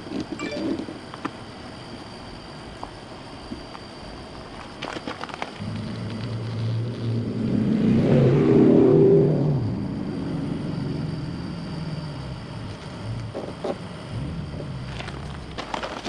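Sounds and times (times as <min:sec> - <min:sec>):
passing vehicle engine hum: 0:05.6 - 0:15.2.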